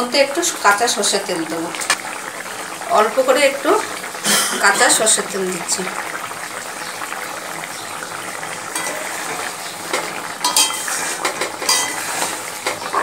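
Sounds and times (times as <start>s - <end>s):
gravy bubbling: 0.1s - 13.0s
utensil scraping a pan: 8.7s - 13.0s.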